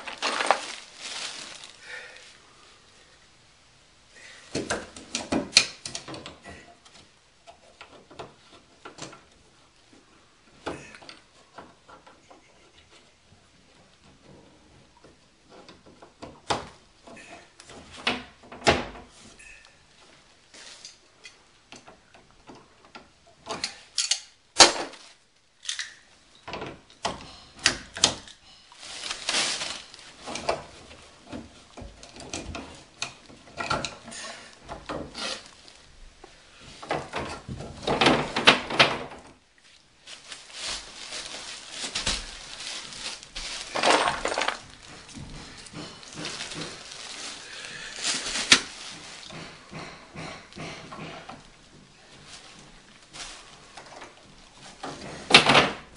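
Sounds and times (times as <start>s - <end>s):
scraping and rustling handling: 0.0s - 3.3s, 4.5s - 55.9s
hand tools knocking and clinking: 49.2s - 51.9s.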